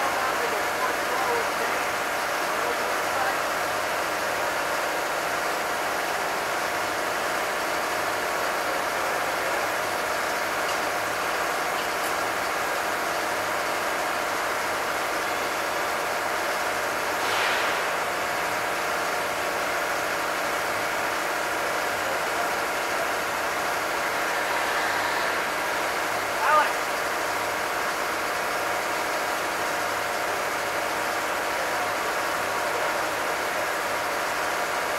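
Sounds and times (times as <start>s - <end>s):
machinery engine idling: 0.0s - 34.9s
short hiss: 17.2s - 18.2s.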